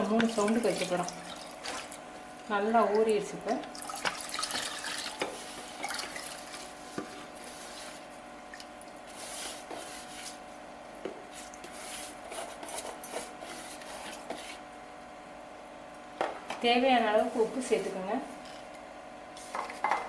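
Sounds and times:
wet grains sloshing and squishing: 0:00.2 - 0:02.0.

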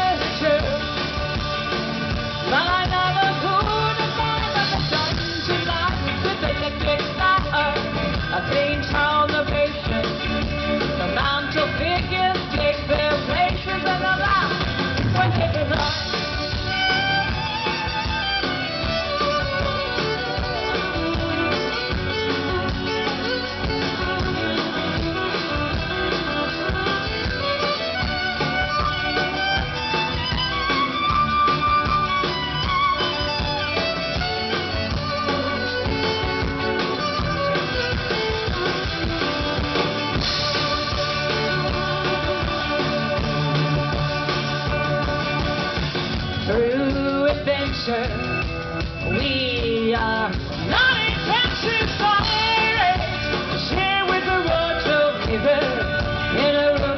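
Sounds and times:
violin melody: 0:00.0 - 0:46.8
drums: 0:00.0 - 0:56.9
electric and acoustic guitars: 0:00.0 - 0:56.9.

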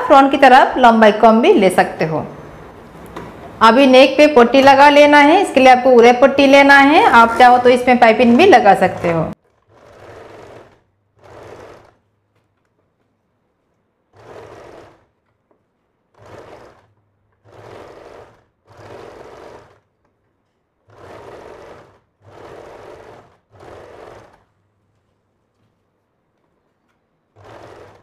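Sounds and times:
electric sewing machine stitching: 0:04.5 - 0:12.4, 0:14.0 - 0:24.7, 0:27.2 - 0:28.0.

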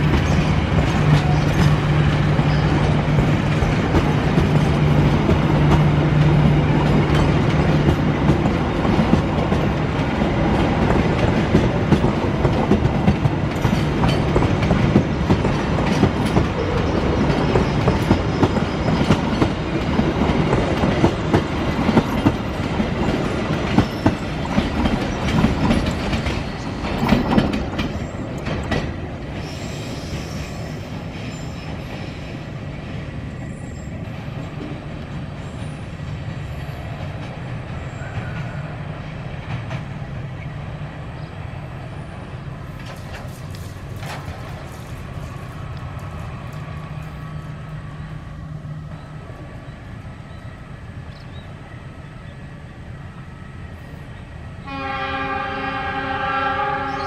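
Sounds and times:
train wheels clicking over rail joints: 0:00.0 - 0:33.3, 0:34.0 - 0:40.5, 0:42.6 - 0:48.2.

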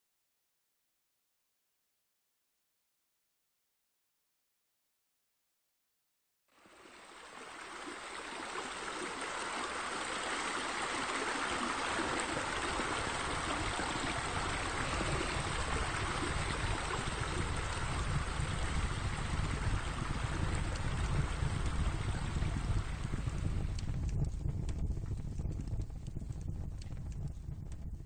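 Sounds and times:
steady rushing noise: 0:07.1 - 0:28.0
low rumble: 0:12.5 - 0:28.0.

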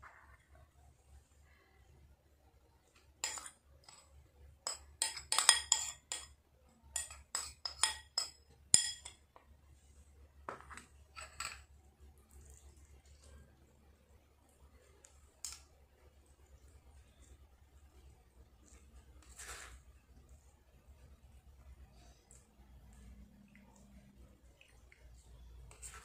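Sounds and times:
metal spoon clinking on bowl: 0:03.2 - 0:09.3.

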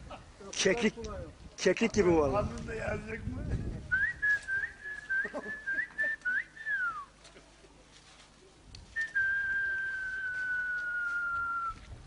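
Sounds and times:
person whistling a tune: 0:04.0 - 0:07.1, 0:09.0 - 0:11.8.

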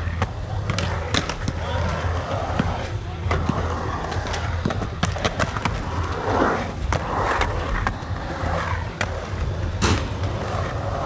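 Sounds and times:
skateboard wheels rumbling on concrete: 0:00.0 - 0:11.0
skateboard sharp clack: 0:00.1 - 0:01.7, 0:09.0 - 0:10.5.

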